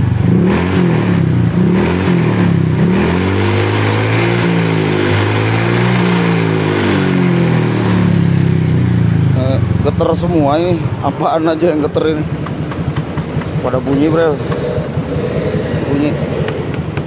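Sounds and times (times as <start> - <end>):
exhaust rattle: 0.0 - 17.0
scooter engine revving: 0.0 - 17.0.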